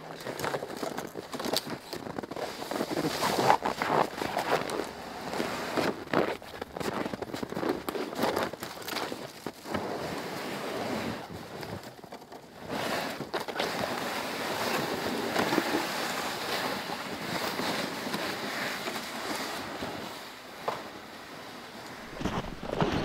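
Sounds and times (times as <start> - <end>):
wind rushing through pines: 21.9 - 23.0.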